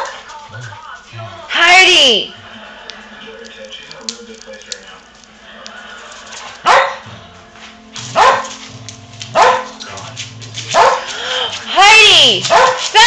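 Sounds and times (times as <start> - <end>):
dog barking: 6.6 - 7.1, 8.1 - 8.6, 9.3 - 9.8, 10.7 - 11.1, 12.4 - 12.9.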